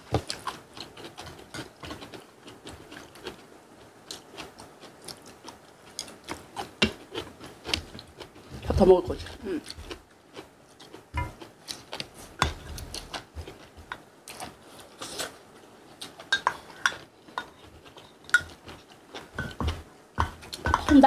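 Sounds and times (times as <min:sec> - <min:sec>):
chewing and slurping: 0:00.2 - 0:08.6, 0:09.2 - 0:21.0
utensils clicking on ceramic bowls: 0:19.4 - 0:21.0.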